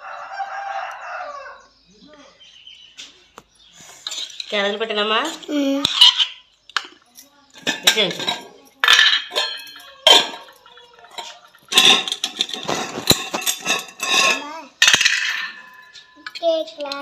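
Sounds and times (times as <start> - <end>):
steel spoon scraping a pan: 3.9 - 4.6, 5.3 - 6.5, 11.1 - 16.2
steel box clinking: 7.5 - 17.0.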